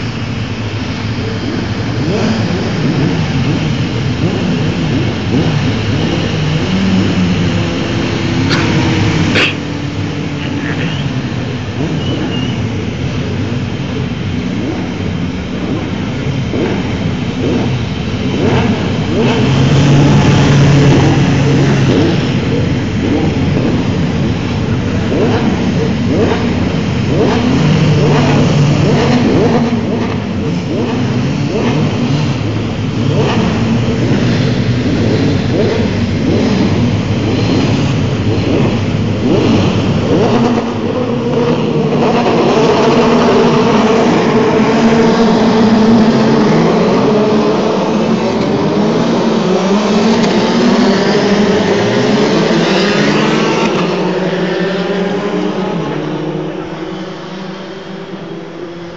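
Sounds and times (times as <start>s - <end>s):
race car engines revving: 0.0s - 58.9s.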